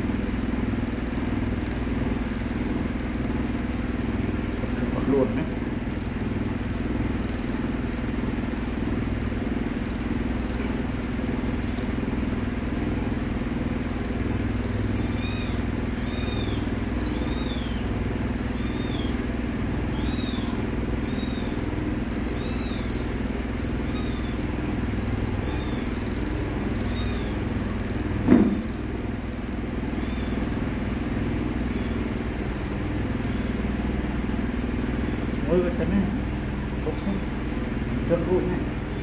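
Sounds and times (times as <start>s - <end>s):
steady low hum: 0.0s - 39.0s
kitten mewing: 14.9s - 19.2s, 19.9s - 23.2s, 23.8s - 24.6s, 25.3s - 27.5s, 29.9s - 30.5s, 31.5s - 32.1s, 33.2s - 33.7s, 34.9s - 35.5s, 36.8s - 37.5s.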